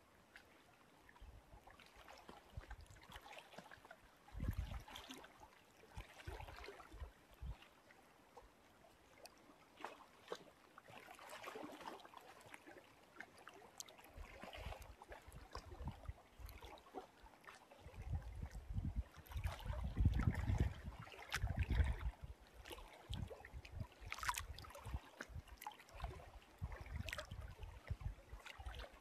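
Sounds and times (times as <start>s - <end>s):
waves lapping and splashing: 0.0s - 29.0s
wind buffeting microphone: 4.3s - 4.8s, 17.9s - 22.2s.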